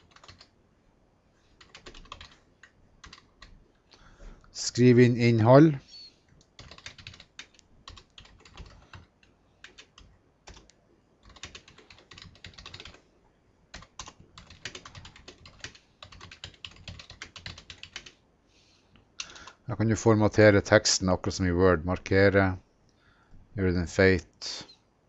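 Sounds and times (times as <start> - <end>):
typing on computer keyboard: 0.0 - 0.5, 1.6 - 3.5, 6.4 - 13.0, 13.7 - 18.2, 19.2 - 19.6.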